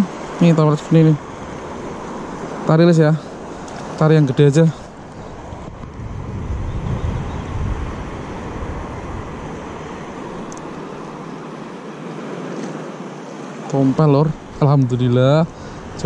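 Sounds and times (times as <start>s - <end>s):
hiss of wind and water: 0.0s - 16.0s
wind buffeting microphone: 4.9s - 10.5s.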